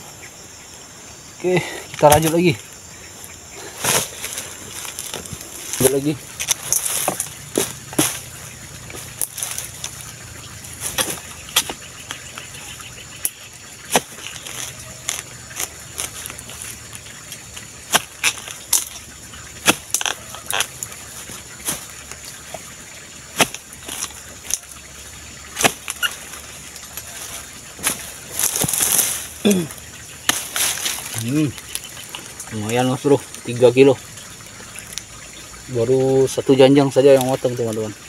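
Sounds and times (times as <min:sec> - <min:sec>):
chisel chopping into stalk: 0:19.6 - 0:20.7, 0:23.4 - 0:24.1, 0:25.6 - 0:26.1.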